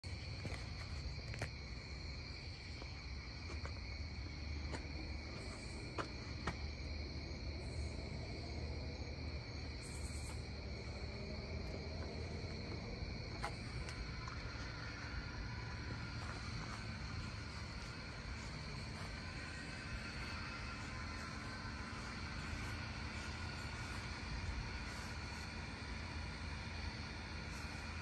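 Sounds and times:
crickets trilling: 0.0s - 28.0s
low rumble: 0.0s - 28.0s.

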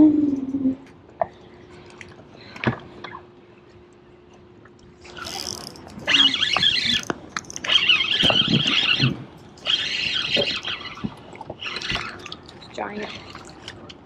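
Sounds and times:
electric trolling motor humming: 5.1s - 13.4s.

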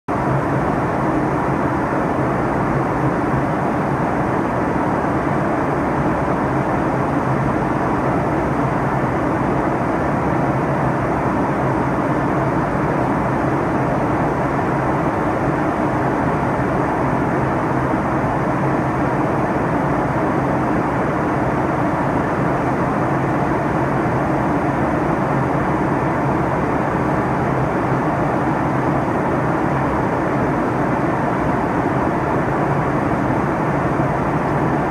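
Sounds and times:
airliner cabin drone: 0.1s - 34.9s.

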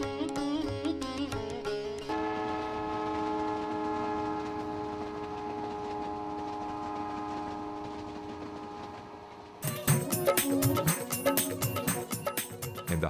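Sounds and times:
moving train noise: 0.0s - 13.0s
train horn chord: 2.1s - 11.9s.

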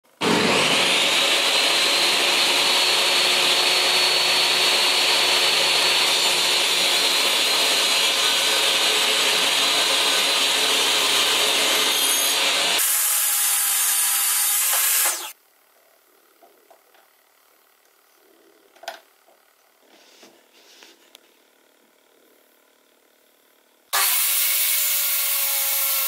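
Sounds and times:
table saw cutting plywood: 0.2s - 15.4s, 23.9s - 26.0s.

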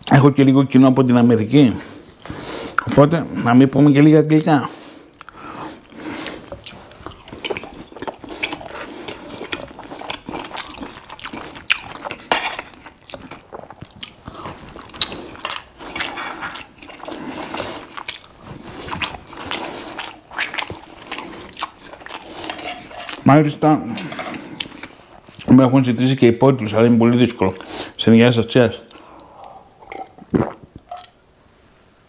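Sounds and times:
person chewing food: 4.4s - 23.3s, 23.9s - 25.5s, 28.9s - 31.2s.

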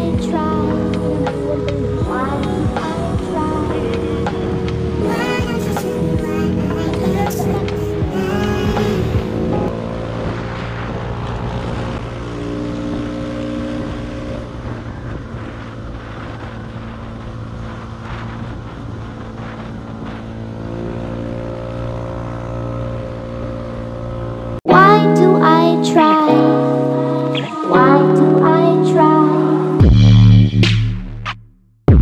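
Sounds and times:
music with singing: 0.0s - 9.7s, 24.7s - 30.8s
scooter engine running: 0.0s - 24.6s
wind on microphone: 0.0s - 24.6s.

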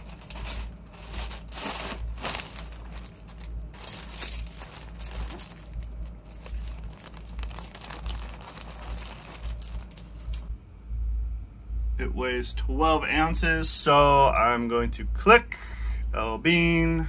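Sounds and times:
plastic bags crinkling: 0.0s - 10.5s
steady low hum: 0.0s - 17.0s.

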